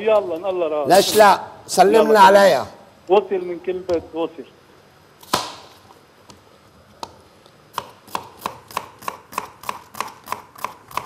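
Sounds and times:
knife chopping on cutting board: 7.7s - 11.0s.

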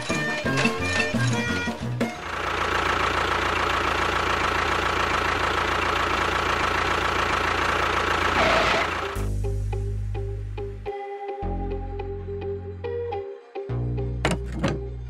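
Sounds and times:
engine humming with high whine: 0.0s - 10.9s.

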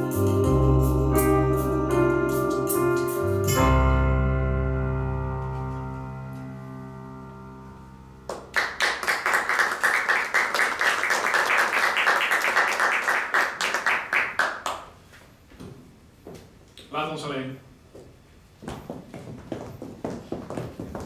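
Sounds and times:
piano chord: 0.0s - 8.8s
audience applause: 8.3s - 14.9s.

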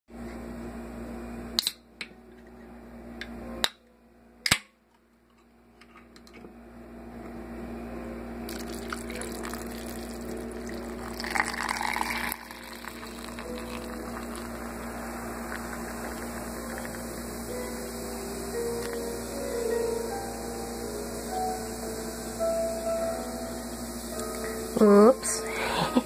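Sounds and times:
steady low hum: 0.2s - 26.0s
soda pouring and fizzing: 8.5s - 17.8s.

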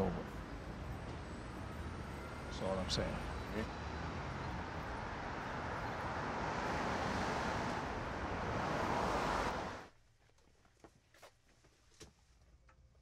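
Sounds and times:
traffic rushing: 0.0s - 9.9s.

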